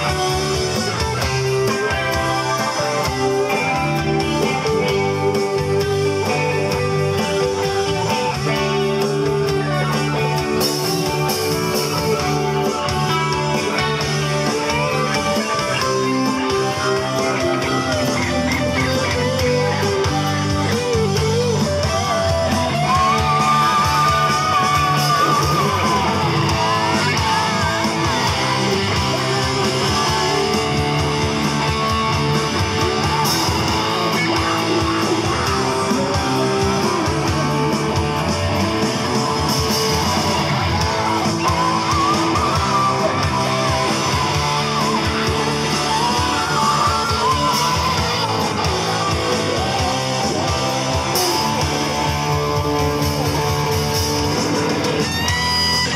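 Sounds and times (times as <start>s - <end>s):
bass guitar: 0.0s - 55.9s
electric guitar: 0.0s - 55.9s
electronic drum kit: 0.0s - 55.9s.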